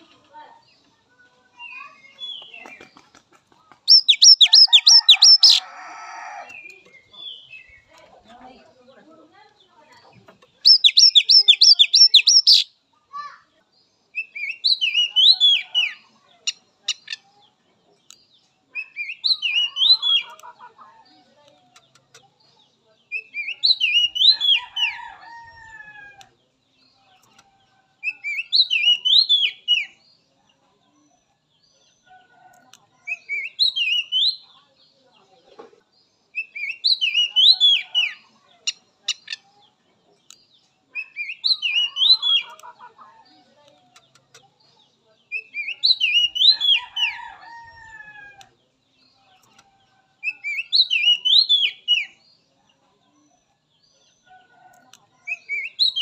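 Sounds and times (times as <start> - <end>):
bird singing whistled notes: 3.9 - 5.6, 10.7 - 12.7, 55.3 - 56.0.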